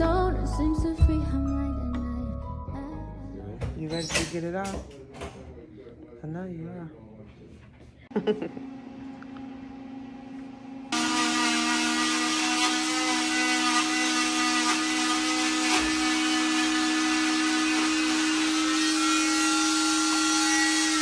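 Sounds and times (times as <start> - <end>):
cast saw whining: 10.9 - 21.0.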